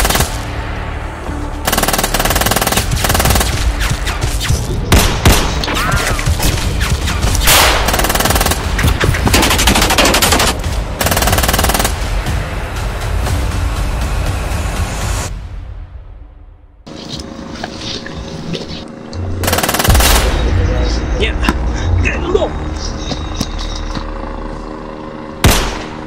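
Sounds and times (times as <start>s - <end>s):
automatic gunfire: 1.7s - 3.6s, 7.4s - 8.7s.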